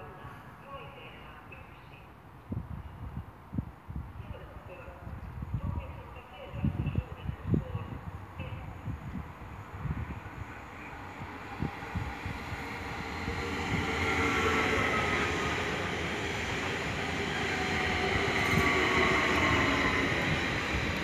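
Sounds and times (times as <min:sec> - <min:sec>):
train wheels rushing on rails: 0:09.1 - 0:21.0.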